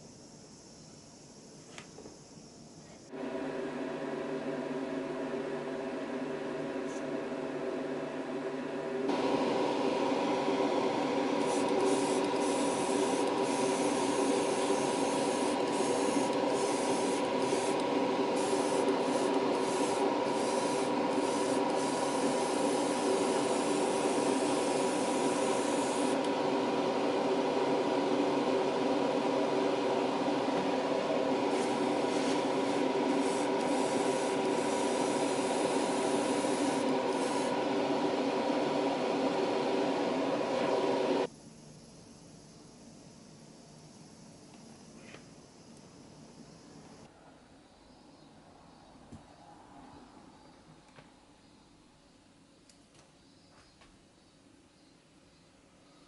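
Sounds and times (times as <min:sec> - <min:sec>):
steady machine hum: 0:02.3 - 0:47.1
airbrush hissing: 0:11.3 - 0:26.4, 0:31.0 - 0:37.6.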